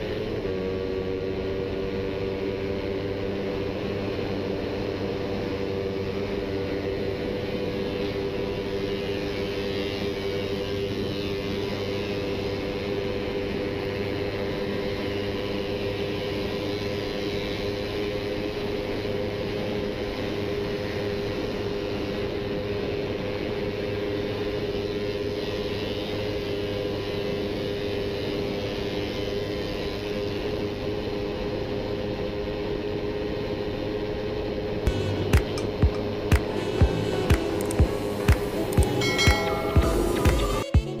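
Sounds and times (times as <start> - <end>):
motorcycle engine cruising: 0.0 - 41.0
sharp clicks: 34.9 - 36.5.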